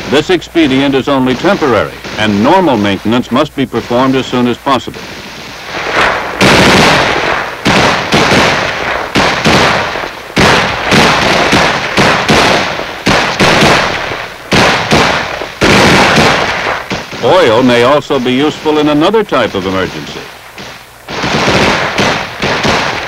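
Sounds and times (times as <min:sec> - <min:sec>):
rifle single shots echoing: 0:05.0 - 0:23.0.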